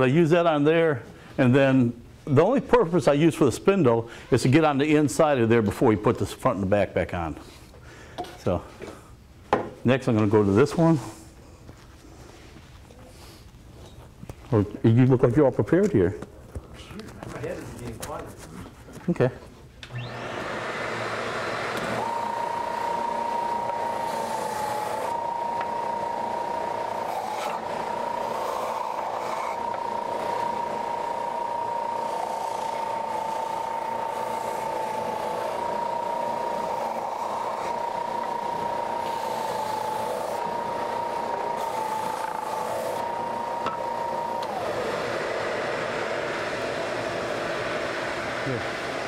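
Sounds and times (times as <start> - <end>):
belt sander whining: 19.8 - 49.0.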